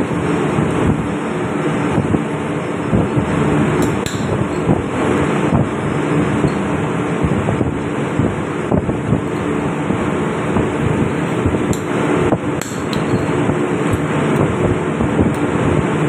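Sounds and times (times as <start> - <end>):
engine-room machinery drone: 0.0 - 16.0
hand tools tapping metal: 3.8 - 4.8, 12.6 - 14.0.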